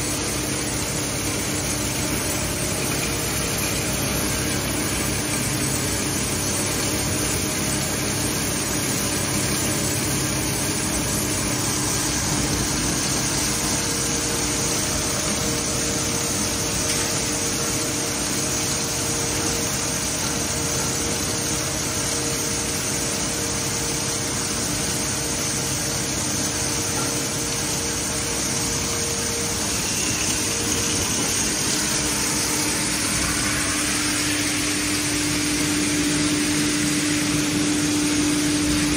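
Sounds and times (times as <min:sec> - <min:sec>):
steady machine tones: 0:00.0 - 0:17.8, 0:25.7 - 0:38.9
machine hum: 0:00.0 - 0:38.9.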